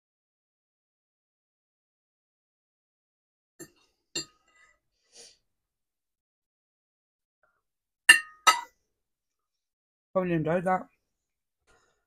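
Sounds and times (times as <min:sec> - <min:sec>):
fork clinking on ceramic plate: 0:08.1 - 0:08.7.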